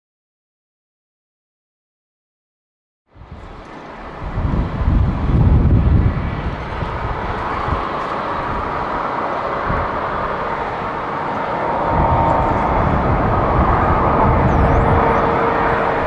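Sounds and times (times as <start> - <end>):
jet roar with fan whine: 3.1 - 16.0
deep rumble: 11.6 - 16.0.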